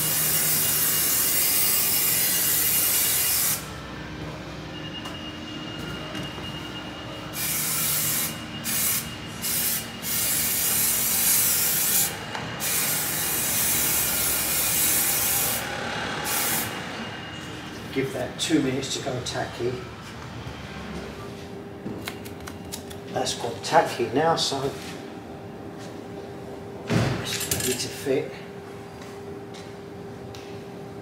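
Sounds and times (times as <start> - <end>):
aerosol can spraying: 7.4 - 15.6.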